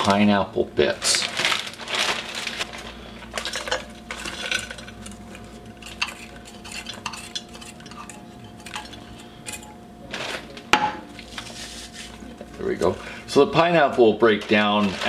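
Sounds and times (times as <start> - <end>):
metal cup and frozen fruit clinking: 1.3 - 11.5.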